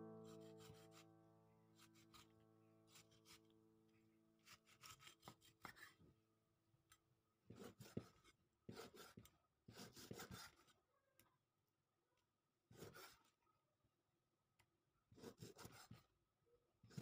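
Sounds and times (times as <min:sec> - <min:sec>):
knife scraping cutting board: 0:04.4 - 0:05.9.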